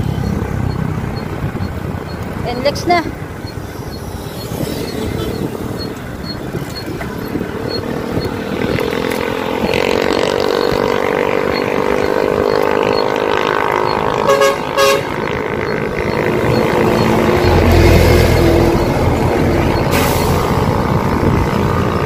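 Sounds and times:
motorcycle engine accelerating: 0:00.0 - 0:22.0
road and wind noise: 0:00.0 - 0:22.0
horn toots: 0:11.7 - 0:18.8.

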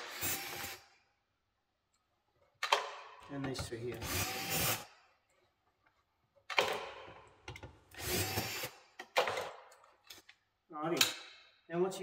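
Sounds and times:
cordless drill driving screws: 0:00.0 - 0:00.8, 0:03.9 - 0:04.9, 0:08.0 - 0:08.8.

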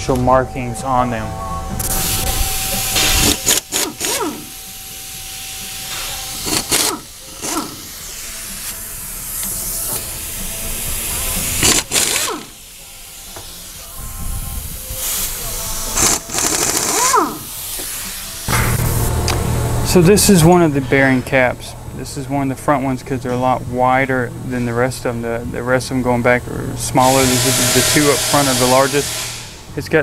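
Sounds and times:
cordless power tool whirring: 0:01.8 - 0:08.8, 0:11.6 - 0:12.6, 0:15.9 - 0:17.9, 0:27.0 - 0:29.6.

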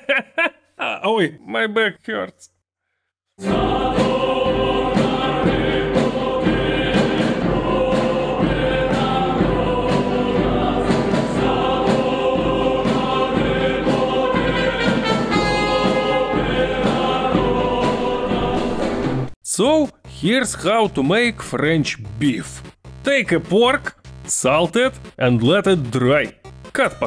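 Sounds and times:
choir with orchestral accompaniment: 0:03.4 - 0:19.3.

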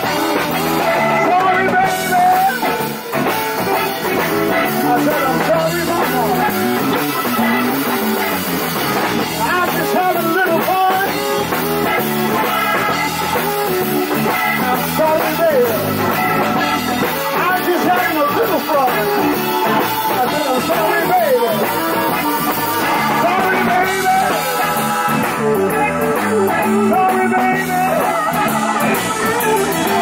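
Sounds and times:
live blues band playing: 0:00.0 - 0:30.0
man singing into a microphone: 0:00.8 - 0:02.8, 0:04.0 - 0:07.0, 0:09.3 - 0:11.5, 0:14.7 - 0:16.0, 0:17.2 - 0:30.0.

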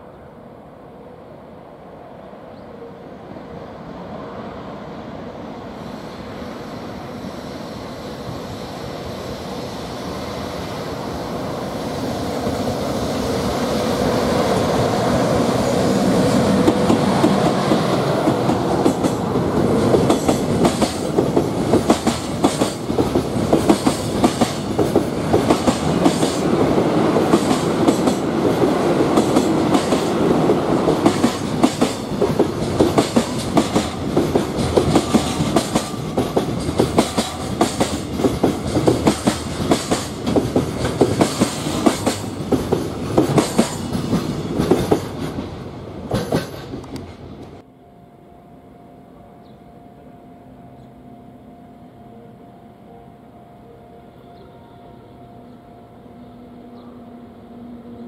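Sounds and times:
train rumble: 0:00.0 - 0:47.7
train wheels clattering on rails: 0:11.9 - 0:47.6.

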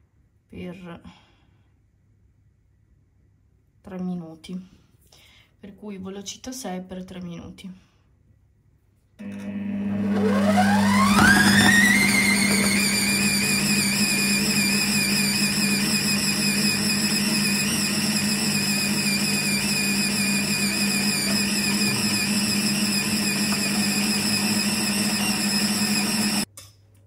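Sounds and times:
kitchen robot motor whining: 0:09.2 - 0:26.5.

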